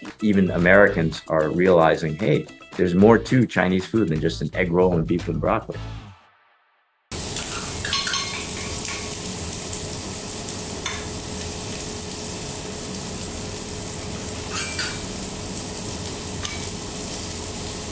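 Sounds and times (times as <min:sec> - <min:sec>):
scallions and garlic sizzling in oil: 0:07.1 - 0:17.9
spatula clinking and scraping pan: 0:07.3 - 0:09.2, 0:14.4 - 0:15.2, 0:16.4 - 0:16.8.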